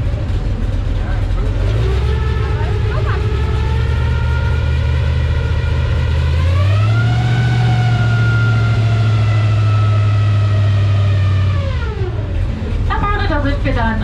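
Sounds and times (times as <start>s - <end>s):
boat motor running: 0.0s - 14.0s.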